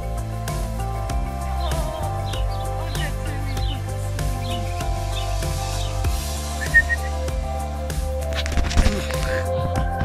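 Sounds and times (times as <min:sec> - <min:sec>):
instrumental background music: 0:00.0 - 0:10.0
ducklings peeping: 0:01.5 - 0:07.1.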